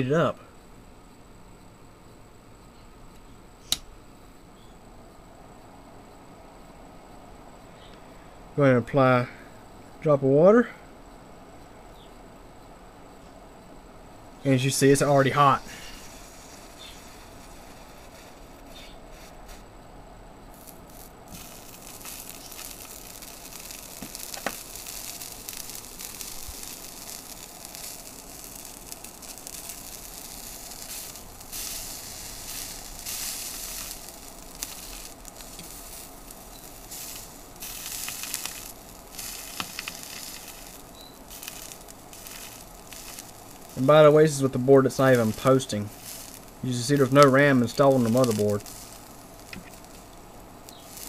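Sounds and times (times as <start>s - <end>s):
meat sizzling on hot chip: 14.9s - 19.7s, 20.5s - 51.0s.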